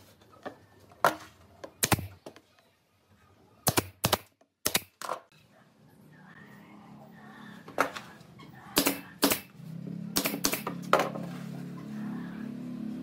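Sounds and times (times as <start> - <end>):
nail gun shots into wood: 1.8 - 2.2, 3.6 - 5.2, 8.8 - 9.5, 10.2 - 11.1.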